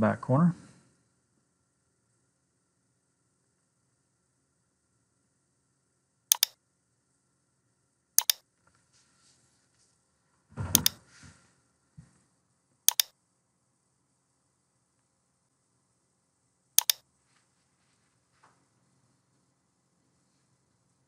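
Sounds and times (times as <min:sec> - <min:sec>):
computer mouse clicks: 0:06.3 - 0:06.6, 0:08.2 - 0:08.4, 0:10.8 - 0:11.0, 0:12.9 - 0:13.1, 0:16.8 - 0:17.0.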